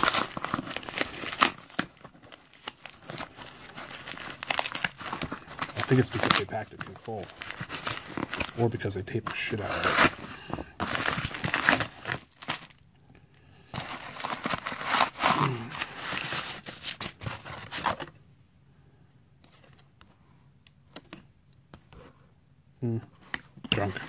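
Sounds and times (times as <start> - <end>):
cardboard and packing tape tearing: 0.0 - 12.8, 13.8 - 18.0.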